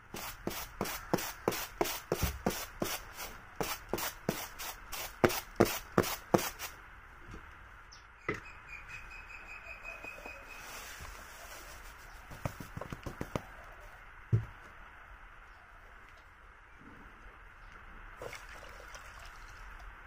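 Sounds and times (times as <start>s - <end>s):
grain swishing on bamboo tray: 10.3s - 12.4s.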